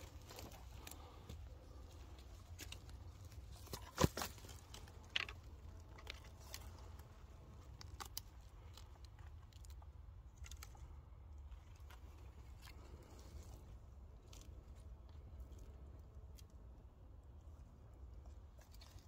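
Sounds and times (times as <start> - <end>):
pine needles and twigs crunching: 0.0 - 19.0
twig snapping: 2.4 - 10.9.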